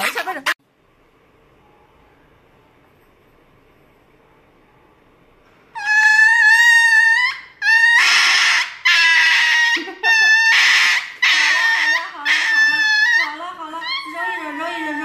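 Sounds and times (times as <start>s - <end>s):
dog crying high-pitched: 5.8s - 15.0s.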